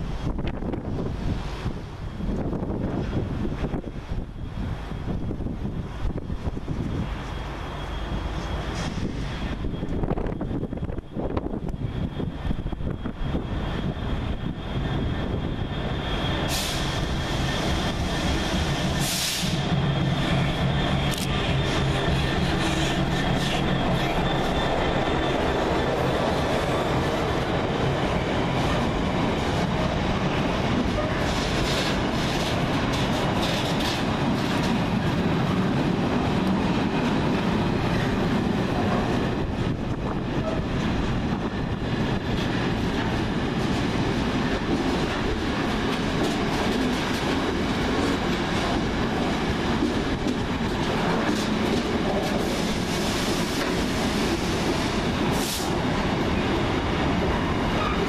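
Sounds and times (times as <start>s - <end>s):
steel wheels rumbling on rail: 0.0s - 58.0s.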